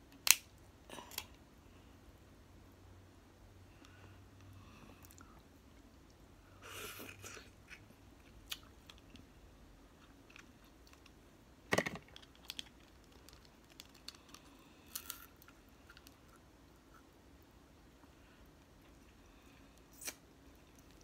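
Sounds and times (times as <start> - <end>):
soft chewing and mouth sounds: 3.7 - 11.2, 12.2 - 21.0.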